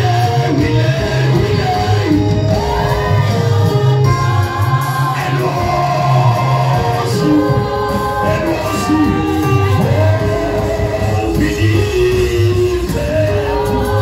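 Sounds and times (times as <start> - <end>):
bass line: 0.0 - 14.0
gospel singing: 0.0 - 14.0
people shouting: 8.2 - 11.4.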